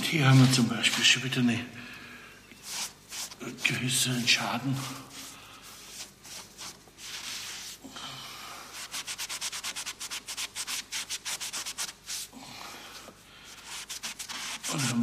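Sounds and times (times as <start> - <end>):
scrubbing strokes on marble: 2.6 - 7.8, 8.7 - 12.3, 13.5 - 15.0.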